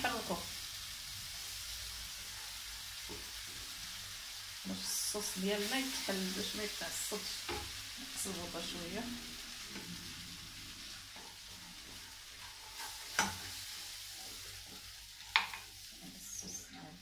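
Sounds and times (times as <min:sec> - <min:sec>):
sauce sizzling in a frying pan: 0:00.0 - 0:17.0
wooden spoon stirring: 0:09.6 - 0:15.7.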